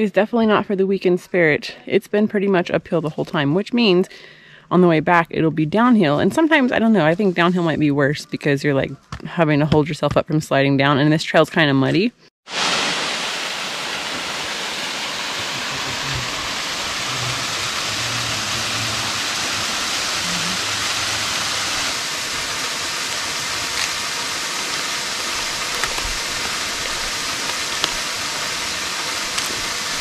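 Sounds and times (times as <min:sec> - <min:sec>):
waterfall rushing: 0:12.5 - 0:30.0.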